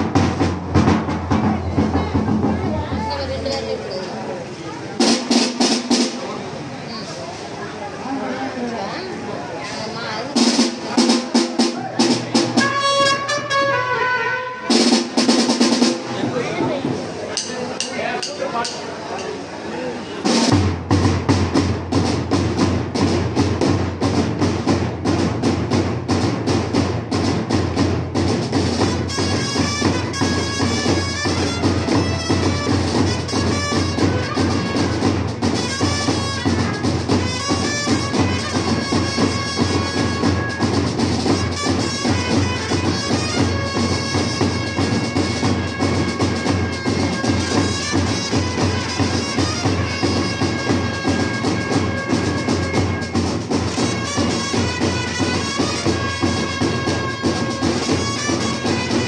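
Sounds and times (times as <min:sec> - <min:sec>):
bass drums beating: 0:00.0 - 0:03.6, 0:20.3 - 0:59.0
side drum: 0:00.0 - 0:03.9, 0:05.0 - 0:06.6, 0:10.3 - 0:14.0, 0:14.7 - 0:19.3, 0:20.2 - 0:59.0
trumpets playing melody: 0:12.5 - 0:15.3, 0:28.7 - 0:59.0.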